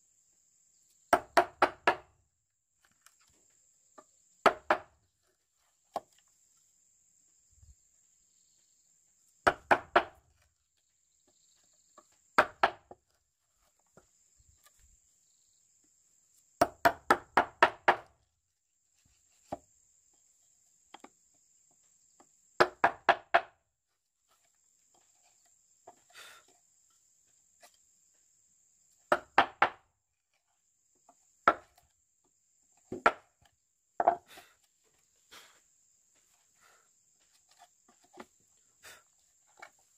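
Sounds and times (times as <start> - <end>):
tool striking wood: 34.0 - 34.3.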